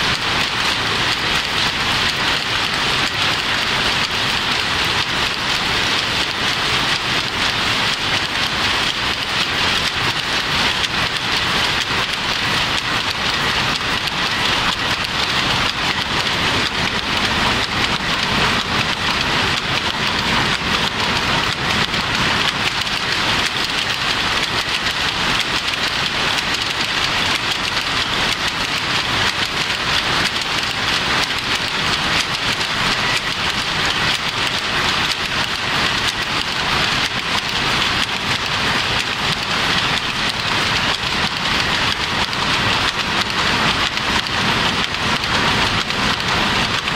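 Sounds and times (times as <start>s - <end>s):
power looms clattering: 0.0s - 46.9s.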